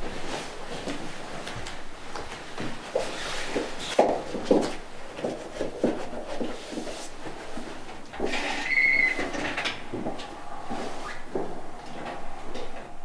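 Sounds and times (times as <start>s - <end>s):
shuffling footsteps: 0.0s - 13.0s
scraping with squeak: 8.2s - 9.7s
coat rustling: 8.8s - 12.5s.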